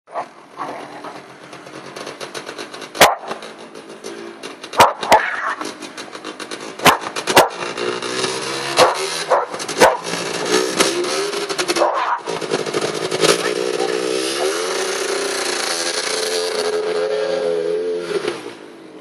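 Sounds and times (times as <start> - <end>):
dog barking: 4.8 - 5.2, 8.8 - 10.1, 11.8 - 12.2, 14.3 - 14.6
small quad motor running: 6.4 - 18.6.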